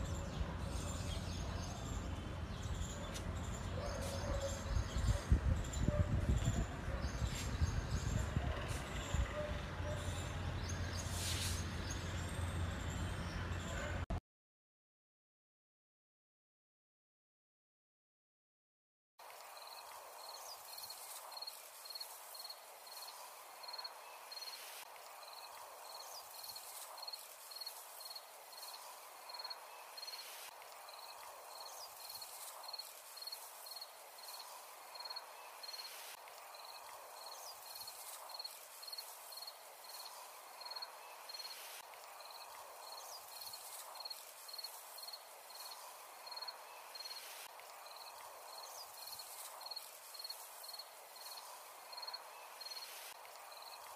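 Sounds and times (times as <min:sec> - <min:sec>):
wind through grass: 0:00.0 - 0:14.0, 0:19.2 - 0:53.9
cricket chirping: 0:30.9 - 0:53.9.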